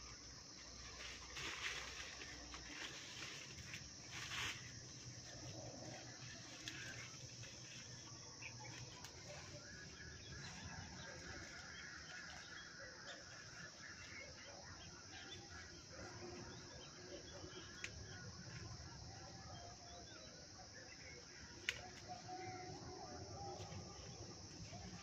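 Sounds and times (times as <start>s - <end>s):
leafy branches rustling: 0.0s - 16.4s, 21.6s - 25.0s.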